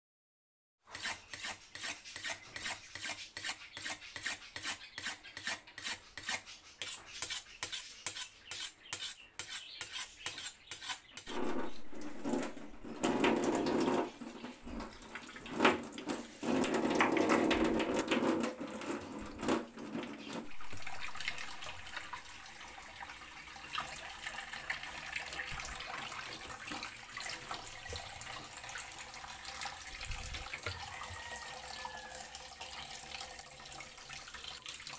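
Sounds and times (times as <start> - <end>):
knife strokes cutting: 0.9 - 11.8
tap water running: 10.8 - 34.9.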